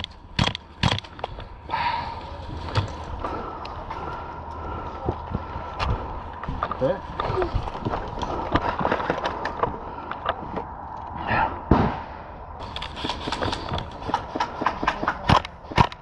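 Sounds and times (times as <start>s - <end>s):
loud thump: 11.7s - 12.2s.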